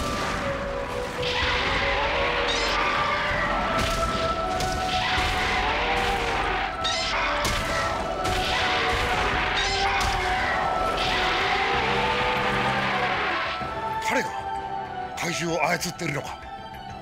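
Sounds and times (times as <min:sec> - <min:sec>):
background music: 0:00.0 - 0:17.0
monster roars: 0:08.4 - 0:13.8.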